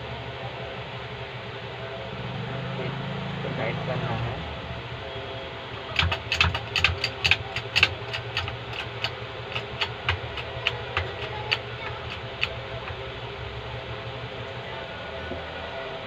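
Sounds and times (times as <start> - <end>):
steady hum: 0.0 - 16.0
hydraulic jack metallic clicks: 6.0 - 13.0.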